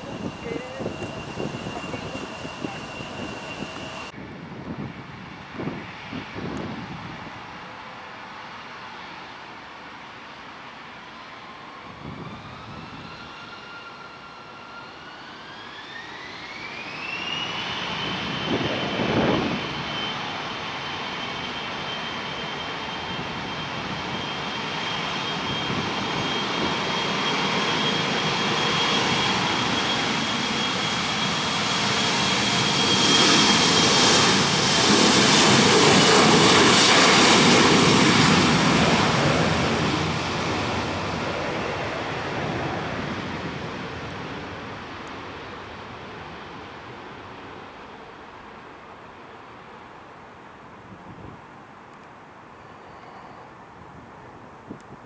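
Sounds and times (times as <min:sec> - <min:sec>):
jet engines whining: 0:00.0 - 0:04.2, 0:11.1 - 0:49.2
jet roar: 0:00.0 - 0:09.3, 0:11.1 - 0:49.2.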